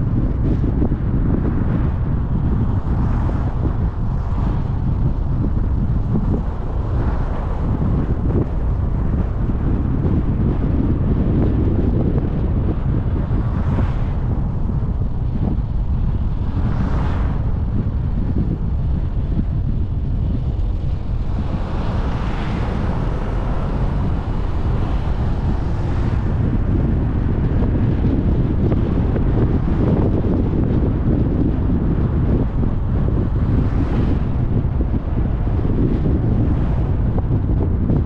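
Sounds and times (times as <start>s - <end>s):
car road and wind noise: 0.0s - 38.0s
wind buffeting microphone: 0.0s - 38.0s.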